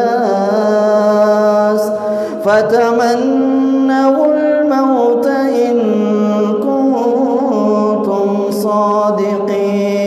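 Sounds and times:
man chanting: 0.0s - 10.0s.

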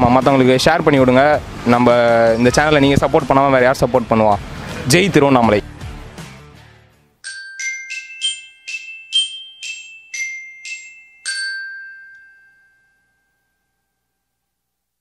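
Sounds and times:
glockenspiel jingle: 7.2s - 14.4s.

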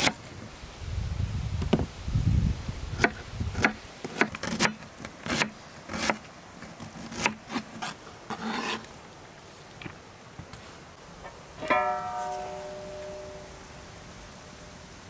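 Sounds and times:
knife blade scraping board: 6.8s - 8.9s.

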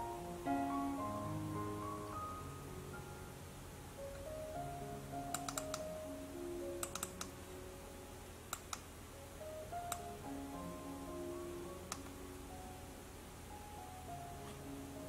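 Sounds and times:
soft background music: 0.0s - 15.0s
computer keys clicking: 5.3s - 5.9s, 6.8s - 7.3s, 11.9s - 12.1s.

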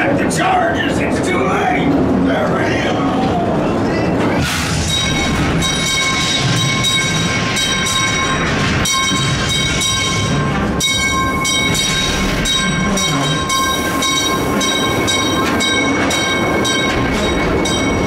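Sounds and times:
ride cars rumbling on track: 0.0s - 18.0s
high ringing tones: 4.8s - 18.0s.

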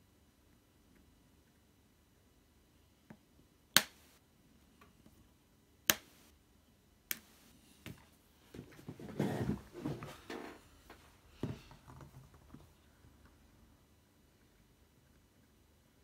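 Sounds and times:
rustling scrape: 8.6s - 10.8s.

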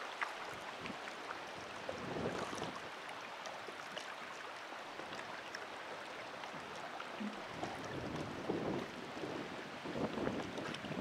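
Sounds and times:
water lapping and splashing: 0.0s - 11.0s
wind on microphone: 1.7s - 2.8s, 7.2s - 11.0s.

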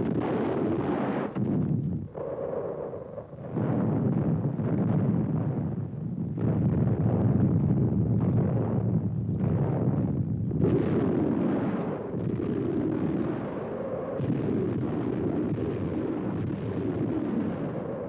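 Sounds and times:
rumble of shell explosions: 0.0s - 18.0s.

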